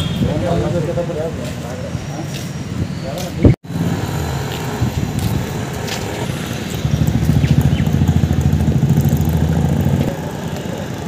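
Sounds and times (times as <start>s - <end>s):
motorcycle engine idling: 3.8s - 11.0s.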